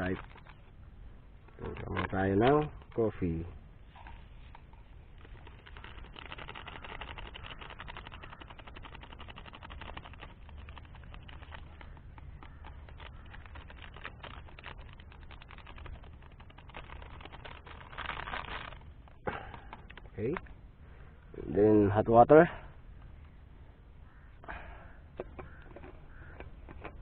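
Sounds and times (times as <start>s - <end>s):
foil sachet crinkling: 0.0s - 0.7s, 1.5s - 3.1s, 4.0s - 20.4s, 25.5s - 27.0s
powder pattering into cup: 4.0s - 20.5s, 25.2s - 27.0s.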